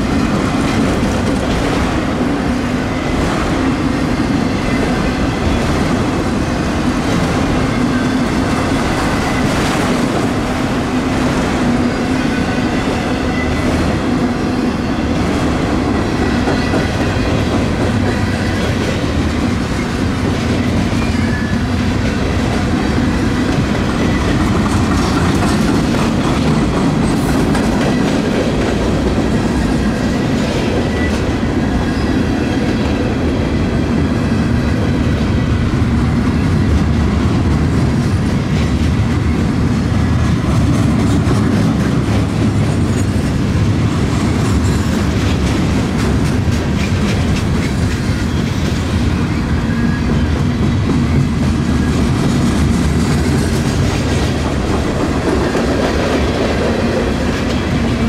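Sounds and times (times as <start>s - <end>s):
freight train rumbling past: 0.0s - 58.0s
wheels clacking over rails: 15.1s - 33.0s.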